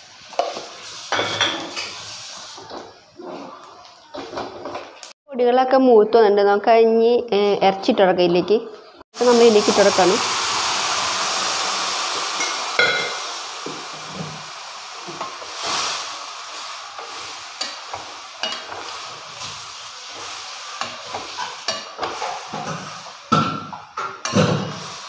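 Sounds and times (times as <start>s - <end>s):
meat sizzling in a pan: 0.0s - 3.0s, 9.2s - 25.0s.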